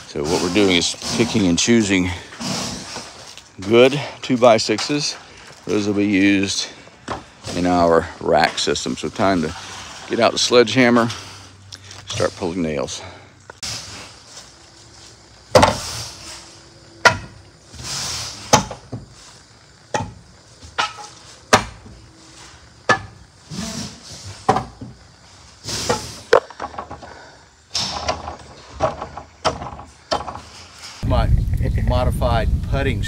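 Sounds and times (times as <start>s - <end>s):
wood scraping: 0.0s - 31.0s
sledgehammer knocking wooden boards: 15.5s - 15.8s, 17.0s - 17.4s, 18.5s - 19.1s, 19.9s - 21.9s, 22.9s - 23.2s, 24.4s - 25.0s, 28.1s - 30.4s.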